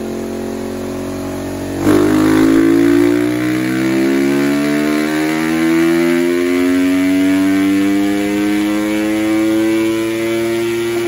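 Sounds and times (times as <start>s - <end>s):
motorcycle engine revving on dyno: 0.0s - 11.0s.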